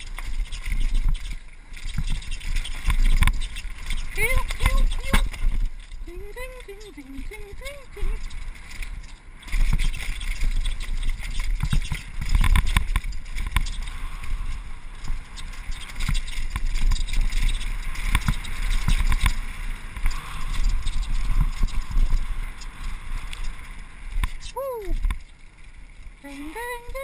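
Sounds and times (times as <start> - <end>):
bike rattling over bumps: 0.0 - 27.0
wind buffeting microphone: 0.0 - 27.0.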